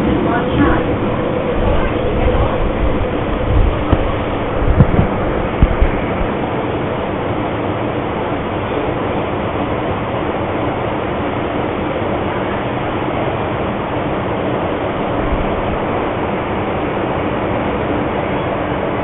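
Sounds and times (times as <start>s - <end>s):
low bump: 0.0s - 6.5s
rushing telephone line noise: 0.0s - 19.0s.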